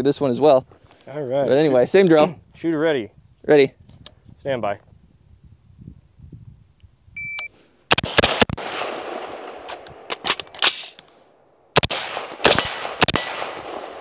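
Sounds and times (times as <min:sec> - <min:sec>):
shot timer beep: 0:07.2 - 0:07.5
rifle shots: 0:07.9 - 0:11.0, 0:11.7 - 0:14.0.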